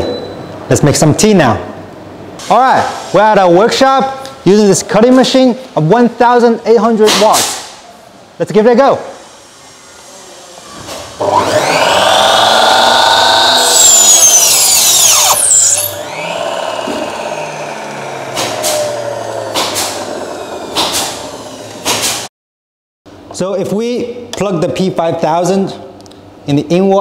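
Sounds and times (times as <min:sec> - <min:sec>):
mitre saw motor whining: 0:11.2 - 0:22.3
saw blade cutting wood: 0:11.2 - 0:22.3.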